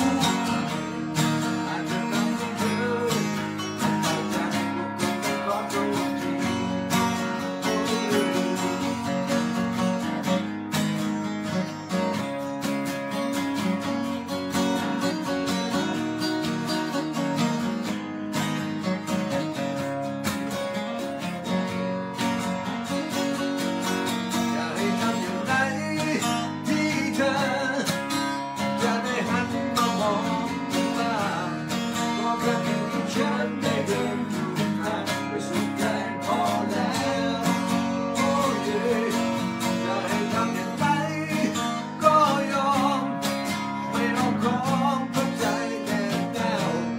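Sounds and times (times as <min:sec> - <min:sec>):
man singing: 0:00.0 - 0:10.1, 0:23.9 - 0:46.9
acoustic guitars strummed: 0:00.0 - 0:46.9.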